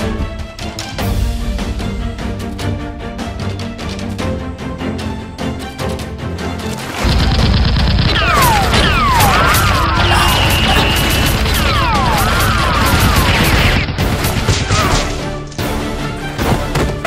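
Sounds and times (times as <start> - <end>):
action music: 0.0 - 17.0
rapid gunfire: 7.0 - 15.3.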